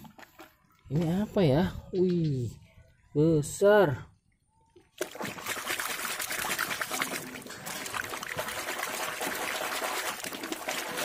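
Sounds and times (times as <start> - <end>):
muddy water splashing: 4.8 - 11.0.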